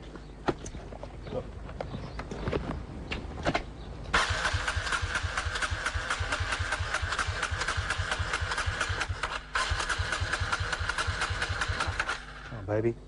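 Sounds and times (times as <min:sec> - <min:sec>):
motorcycle engine starting and idling: 0:04.1 - 0:12.7.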